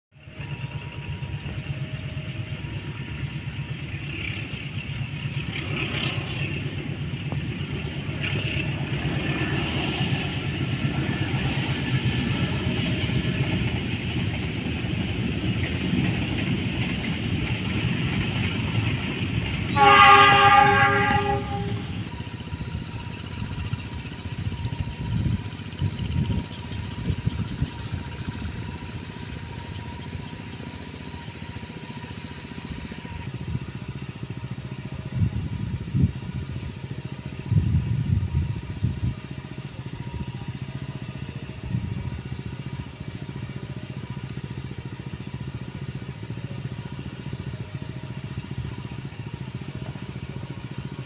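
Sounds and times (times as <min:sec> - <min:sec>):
freight train rumbling past: 0:00.1 - 0:51.0
rail noise: 0:00.1 - 0:51.0
diesel locomotive horn: 0:19.4 - 0:25.1.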